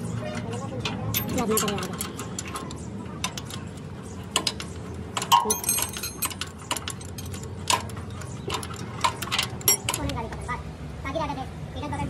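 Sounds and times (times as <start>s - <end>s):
metal tools clinking: 0.5s - 10.2s
ringing metallic clank: 5.3s - 6.4s.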